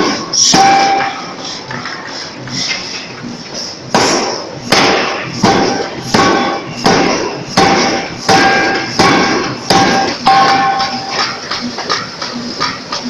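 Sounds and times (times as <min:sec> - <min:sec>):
forging hammer striking steel: 0:00.0 - 0:01.3, 0:04.0 - 0:13.0.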